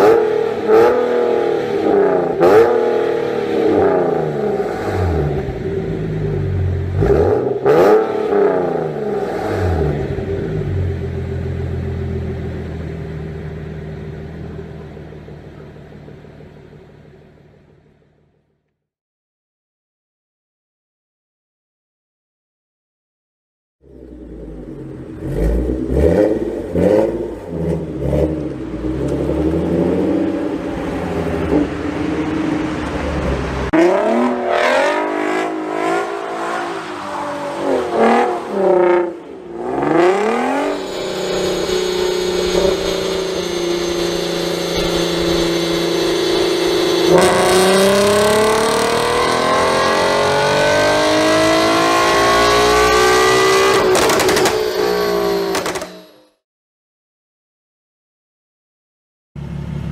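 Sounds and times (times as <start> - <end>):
car accelerating hard: 0.0 - 13.1, 23.8 - 56.1
car engine revving: 0.0 - 18.5, 23.8 - 56.3.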